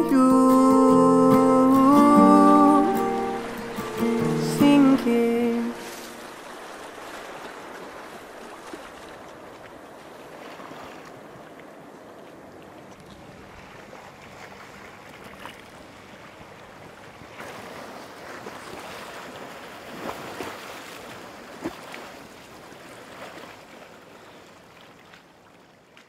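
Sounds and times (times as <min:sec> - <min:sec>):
waves splashing on rocky shore: 0:00.2 - 0:11.5.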